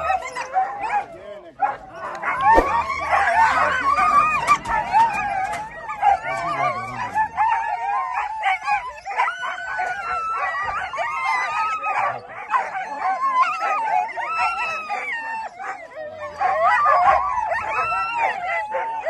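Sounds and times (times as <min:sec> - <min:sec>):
dogs yelping and whining: 0:00.0 - 0:19.0.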